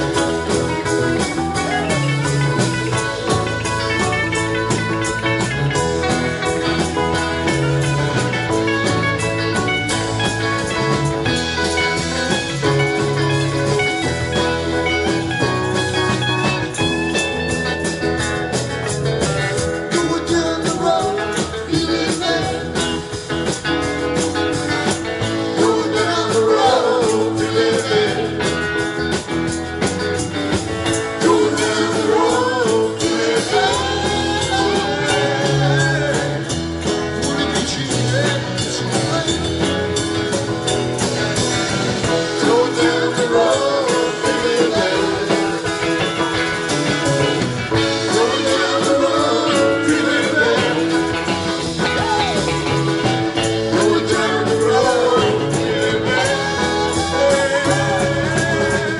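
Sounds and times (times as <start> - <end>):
bass guitar: 0.0 - 58.9
drum kit beat: 0.0 - 58.9
electric guitars: 0.0 - 58.9
person singing: 19.8 - 23.2, 25.2 - 28.7, 30.9 - 36.6, 42.0 - 46.3, 47.8 - 58.9.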